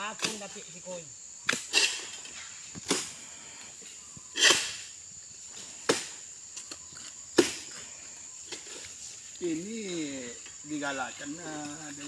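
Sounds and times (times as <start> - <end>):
insects buzzing: 0.0 - 12.0
sharp cracks of fronds cut: 0.2 - 0.5, 4.3 - 4.9, 5.8 - 7.8.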